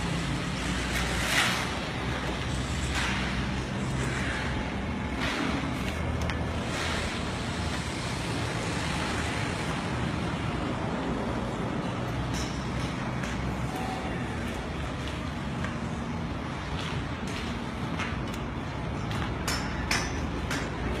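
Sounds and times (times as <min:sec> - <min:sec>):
low rumbling background noise: 0:00.0 - 0:21.0.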